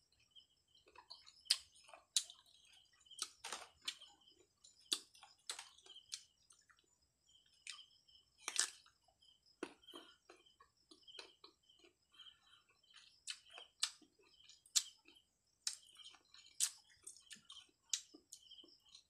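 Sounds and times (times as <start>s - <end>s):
crunching of crisp mango: 0.8s - 6.8s, 7.6s - 9.0s, 12.9s - 19.0s.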